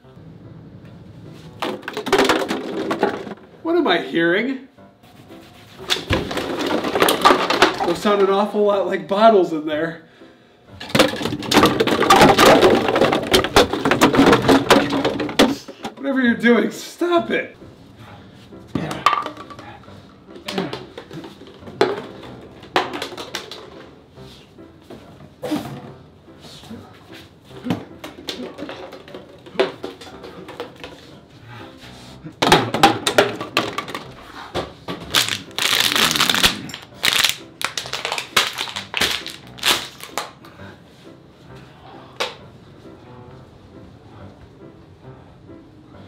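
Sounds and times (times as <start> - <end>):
plastic bottles clattering on floor: 1.5 - 3.5, 5.8 - 8.5, 10.8 - 16.1, 18.7 - 24.0, 27.5 - 31.3, 32.3 - 40.4.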